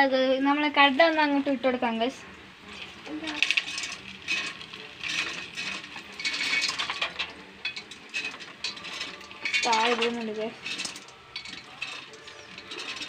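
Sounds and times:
peanuts rattling into a pan: 2.6s - 13.0s.

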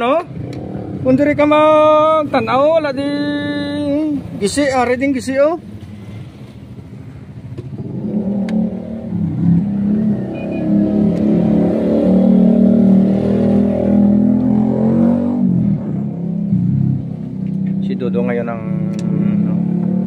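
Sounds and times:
diesel engine revving: 7.6s - 20.0s.

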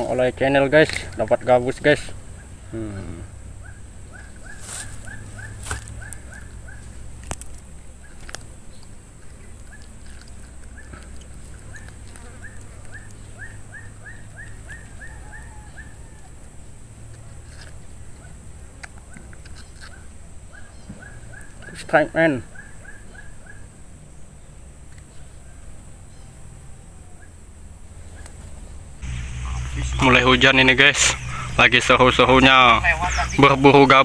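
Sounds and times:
animal high chirps: 3.6s - 7.0s, 11.6s - 16.3s, 30.8s - 34.0s.

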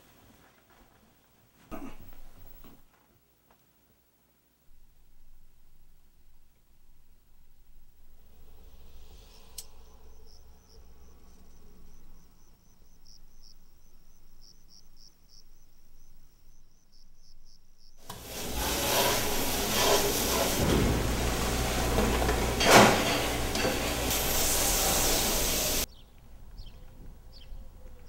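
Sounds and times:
crickets chirping: 5.2s - 18.0s
sprayer blasting water into steel pan: 18.0s - 25.9s.

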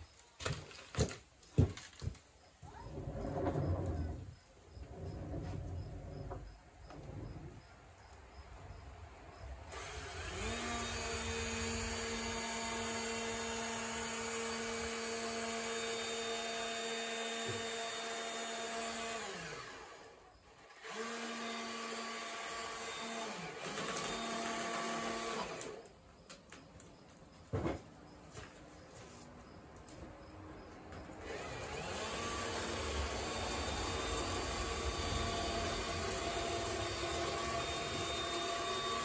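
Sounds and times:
small electric motor whining: 9.7s - 25.8s, 31.2s - 39.0s.

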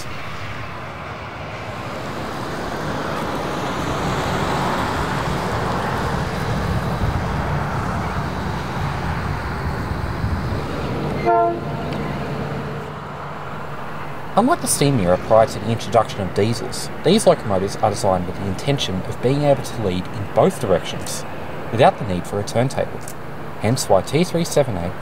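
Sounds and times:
locomotive engine rumble: 0.0s - 25.0s
locomotive horn toot: 11.2s - 11.9s.

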